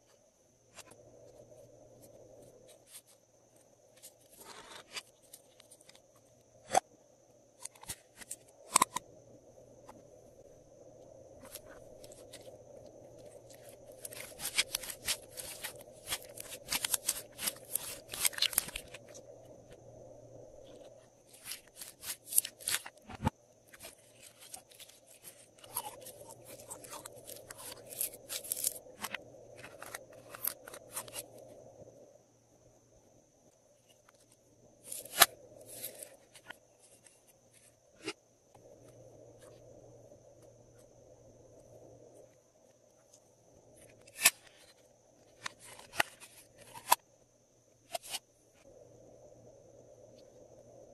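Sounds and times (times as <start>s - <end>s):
faint high whine: 0.0s - 50.9s.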